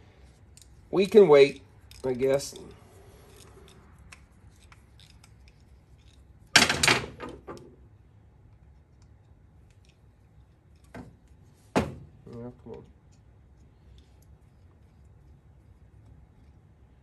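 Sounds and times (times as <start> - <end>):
clicks of small metal parts: 1.5 - 6.9.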